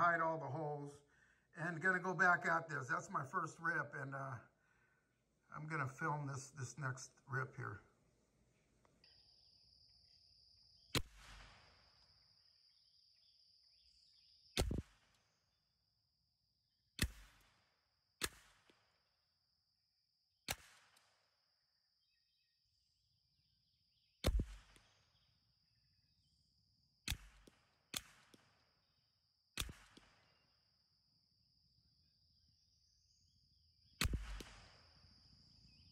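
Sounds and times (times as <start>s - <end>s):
rifle shots: 11.0s - 11.8s, 27.1s - 28.6s, 29.6s - 30.3s, 34.0s - 34.9s.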